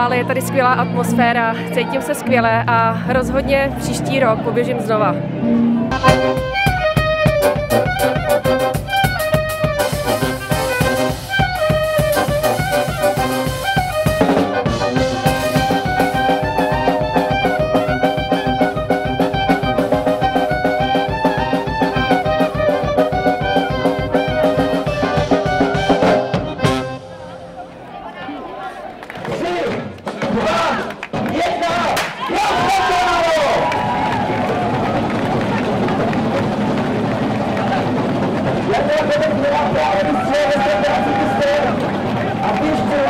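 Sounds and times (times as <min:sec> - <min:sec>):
live band playing up-tempo tune: 0:05.6 - 0:27.8.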